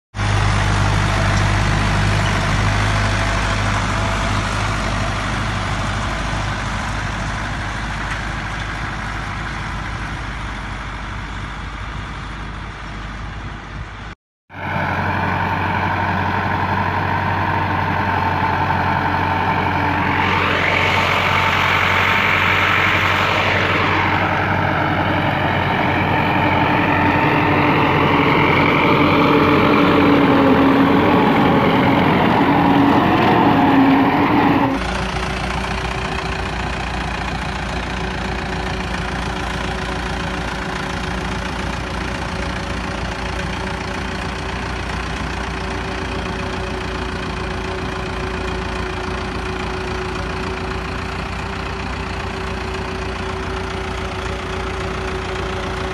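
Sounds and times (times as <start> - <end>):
tractor diesel engine under load: 0.1 - 55.9
high whine: 14.5 - 35.0.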